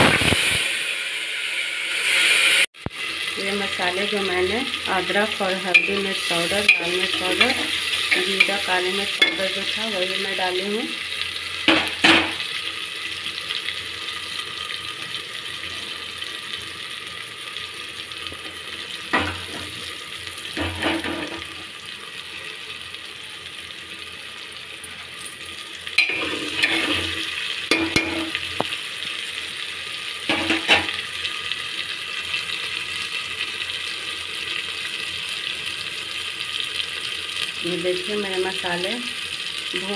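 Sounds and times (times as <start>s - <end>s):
spices sizzling in hot oil: 0.0s - 39.9s
spoon stirring and knocking pot: 5.7s - 9.7s, 26.0s - 28.6s.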